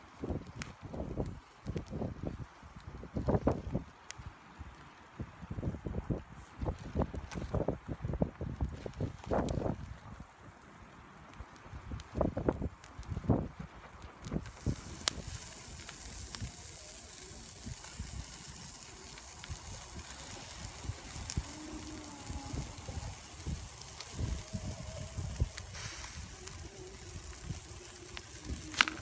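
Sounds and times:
skewers sizzling over charcoal: 0.0s - 29.0s
wind rumbling on microphone: 0.0s - 29.0s.

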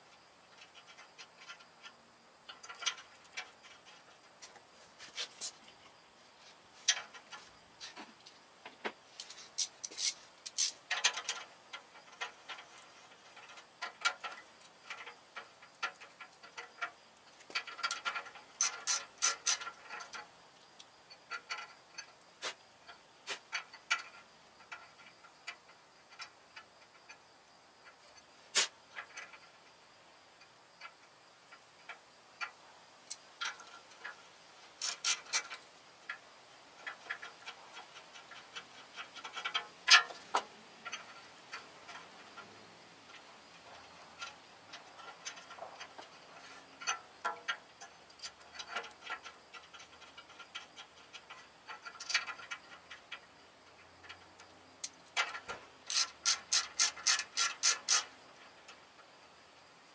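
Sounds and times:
ratchet wrench clicking: 9.6s - 11.8s, 17.6s - 20.0s, 34.8s - 35.6s, 54.8s - 58.1s.

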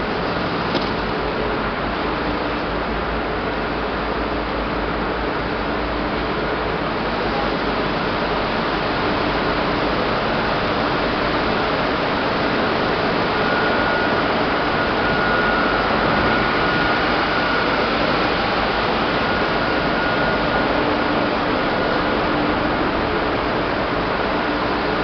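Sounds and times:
large fan rushing: 0.0s - 25.0s
faint high whine: 6.2s - 25.0s.

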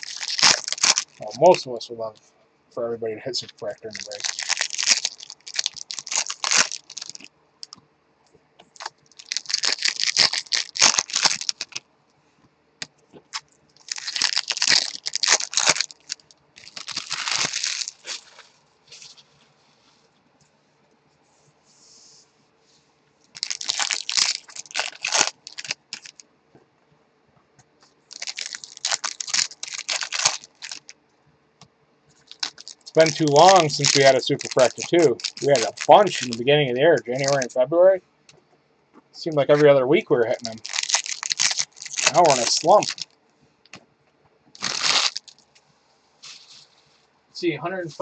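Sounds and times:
foil wrappers crinkling and tearing: 0.0s - 1.6s, 3.7s - 7.8s, 8.8s - 11.8s, 13.3s - 19.2s, 23.3s - 26.2s, 28.1s - 30.9s, 32.2s - 37.6s, 39.2s - 43.2s, 44.6s - 45.4s, 46.2s - 46.8s.

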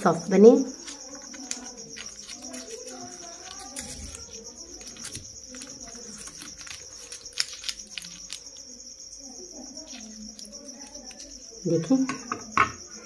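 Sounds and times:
crickets chirring: 0.0s - 13.0s
paper liner crinkling and clicks: 0.8s - 8.7s.

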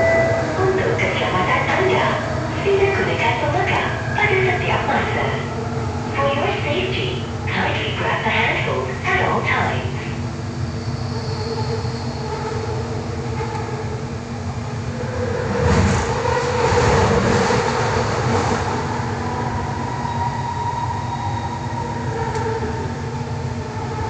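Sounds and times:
wheel and rail rumble: 0.0s - 24.0s
train motor whine: 19.4s - 24.0s.

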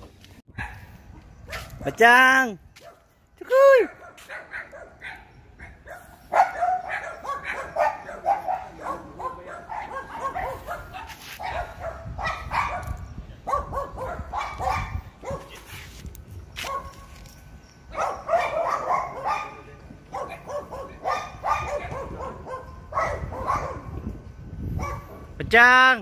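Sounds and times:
small dogs barking: 0.6s - 1.8s, 3.9s - 15.7s, 16.6s - 17.1s, 17.9s - 24.0s, 24.8s - 25.4s.

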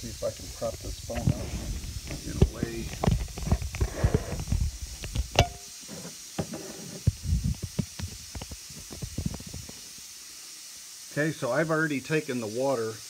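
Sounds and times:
faint hiss: 0.0s - 13.0s.

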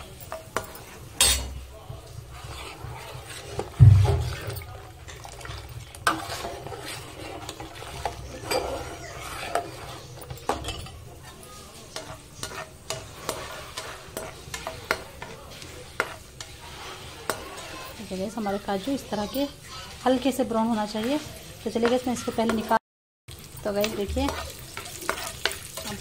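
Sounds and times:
spoon scraping a pan: 0.0s - 22.8s, 23.6s - 26.0s
cashews sizzling in a pan: 0.0s - 26.0s
heavy low thump: 3.8s - 4.4s.

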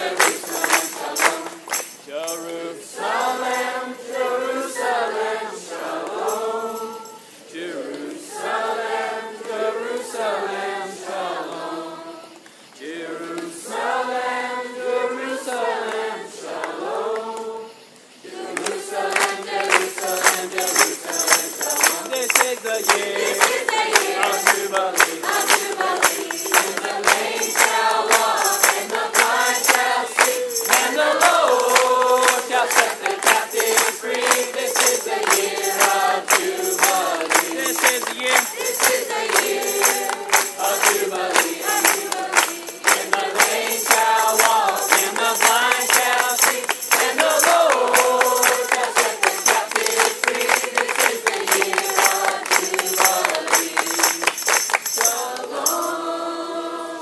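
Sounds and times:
choir singing: 0.0s - 57.0s
high shimmering percussion: 18.8s - 56.0s.

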